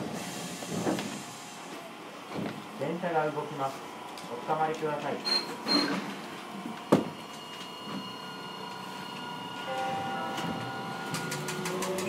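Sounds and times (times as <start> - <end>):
tram inverter whine: 6.0 - 12.0.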